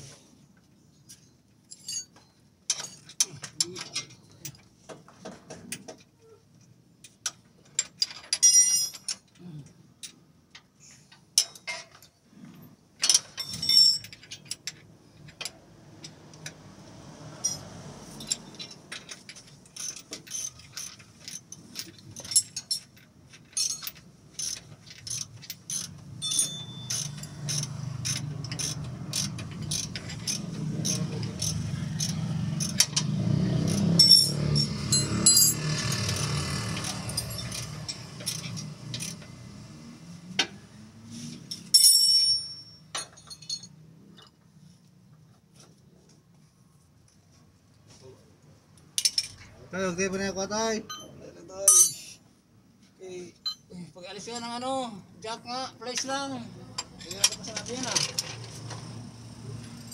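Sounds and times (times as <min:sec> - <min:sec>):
hand tools clicking and knocking: 0:01.1 - 0:06.2, 0:17.4 - 0:39.4, 0:48.8 - 0:49.5, 0:51.7 - 0:52.1, 0:56.7 - 0:59.9.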